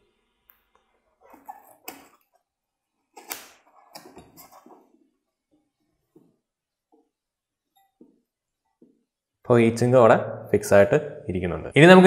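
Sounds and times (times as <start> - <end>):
rubbing sounds: 3.2 - 6.4.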